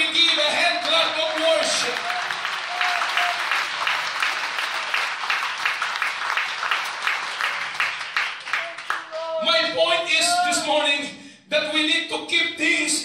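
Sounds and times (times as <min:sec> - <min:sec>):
congregation clapping in unison: 0:00.0 - 0:09.3.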